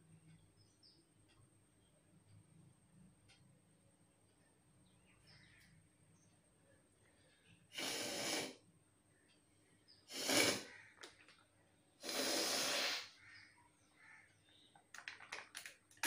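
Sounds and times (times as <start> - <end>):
woman blowing her nose: 7.8 - 8.6, 10.1 - 10.7, 12.0 - 13.1.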